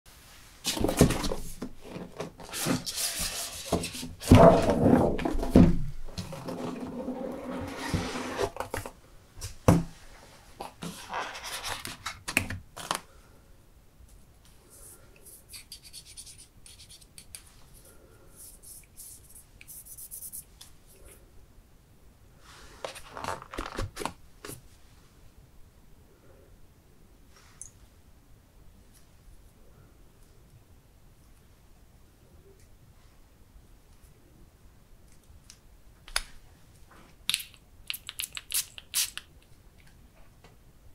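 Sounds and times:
packaging rubbing and scraping: 6.2s - 8.8s.

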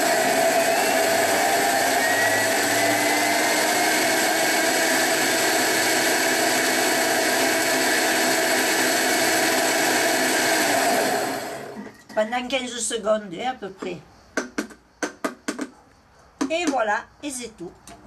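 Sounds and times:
food processor blades whirring: 0.0s - 11.8s.

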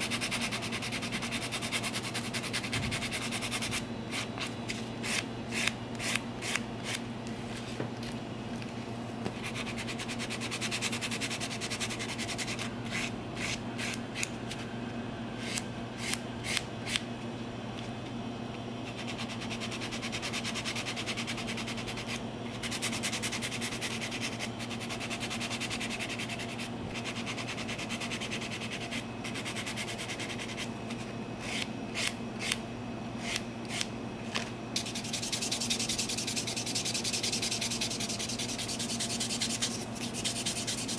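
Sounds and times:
steady low hum: 0.0s - 40.9s
nail file rubbing nails: 34.8s - 40.9s.

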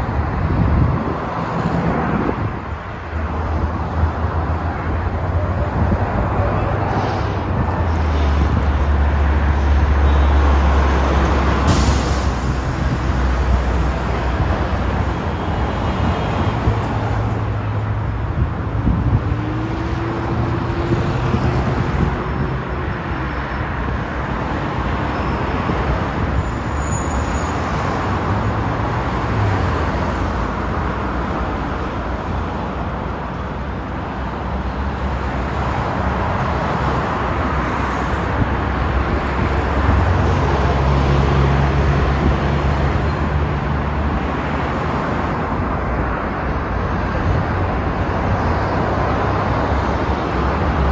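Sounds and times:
highway traffic rushing: 0.0s - 50.9s.

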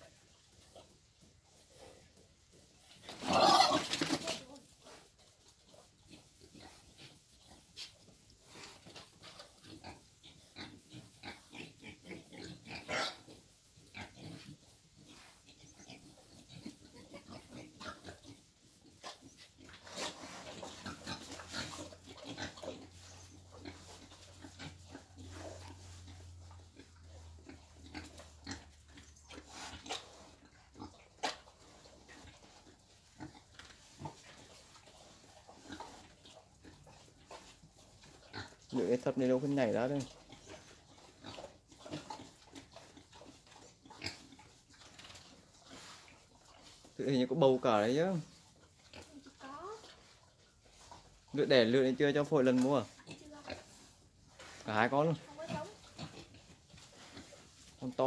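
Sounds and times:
wild boars grunting and snuffling: 0.0s - 58.0s.

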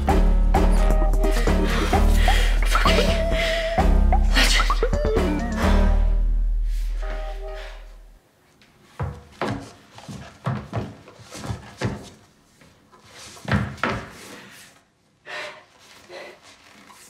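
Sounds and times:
music cue: 0.0s - 8.2s
footsteps on hard floor: 8.6s - 14.3s.

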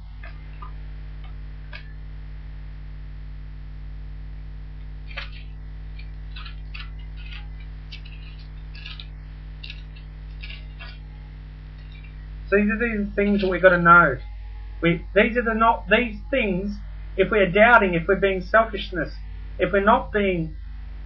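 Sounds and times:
electrical hum: 0.0s - 21.0s
pages rustling: 5.1s - 11.1s, 11.7s - 12.2s.

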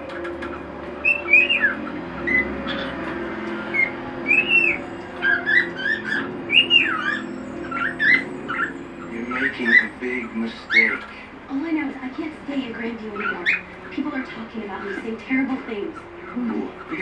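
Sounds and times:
cockatiel whistled calls: 0.3s - 3.0s, 3.6s - 11.1s, 13.1s - 13.8s.

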